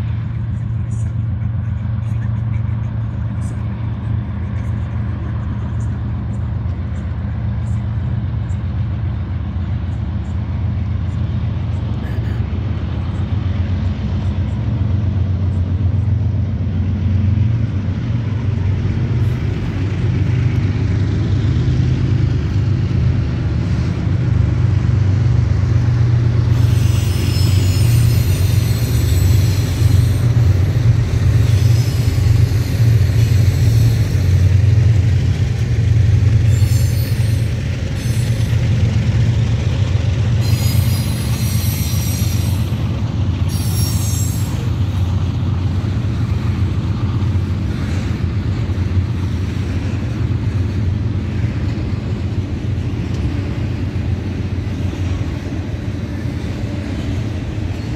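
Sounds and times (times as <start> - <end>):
diesel locomotive deep rumble: 0.0 - 57.9
sharp hissing: 26.5 - 34.5, 40.4 - 44.8.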